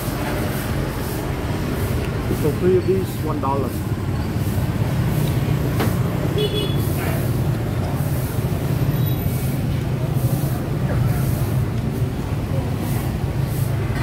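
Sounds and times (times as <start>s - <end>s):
low market rumble: 0.0s - 14.0s.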